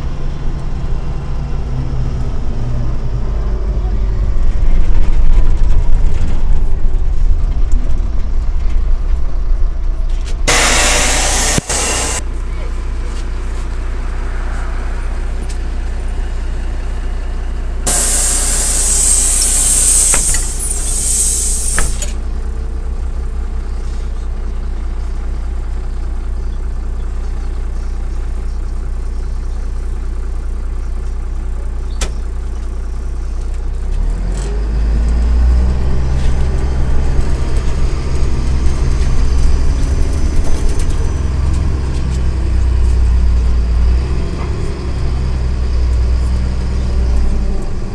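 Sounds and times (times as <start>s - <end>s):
bus engine: 0.0s - 47.9s
pneumatic air hiss: 10.5s - 12.2s, 17.9s - 22.2s.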